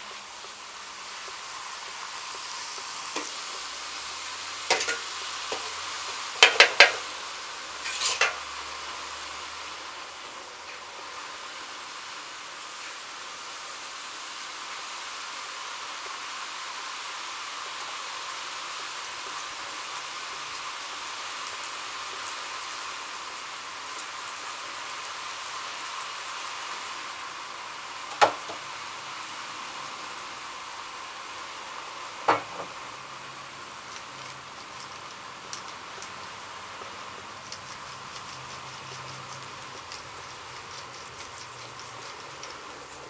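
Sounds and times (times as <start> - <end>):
vegetables sizzling in a wok: 0.0 - 43.0
metal utensil knocking on wok: 6.4 - 7.0.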